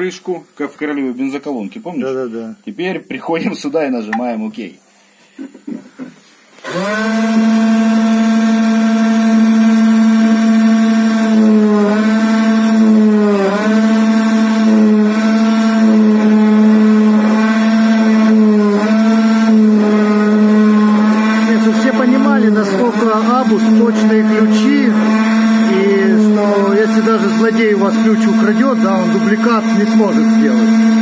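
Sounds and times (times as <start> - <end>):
machine spindle whining: 6.6 - 31.0.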